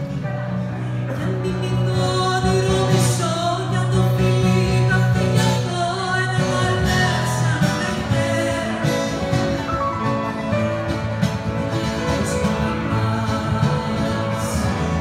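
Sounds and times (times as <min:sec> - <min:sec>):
acoustic guitar: 0:00.0 - 0:15.0
piano: 0:00.0 - 0:15.0
woman singing: 0:01.1 - 0:09.6, 0:11.8 - 0:15.0.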